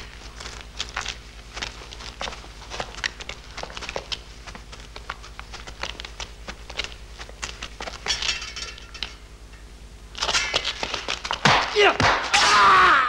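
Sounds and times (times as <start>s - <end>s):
feet shuffling on floor: 0.0s - 8.9s
steady low hum: 0.0s - 13.0s.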